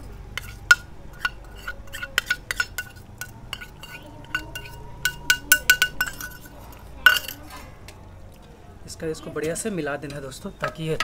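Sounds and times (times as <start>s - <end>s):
metal spoon scraping a metal bowl: 0.0s - 7.5s.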